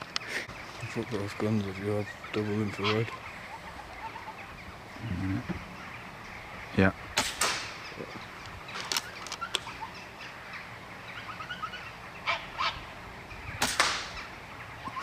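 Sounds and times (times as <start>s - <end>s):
air rifle shot: 7.2s - 7.8s, 13.6s - 14.2s.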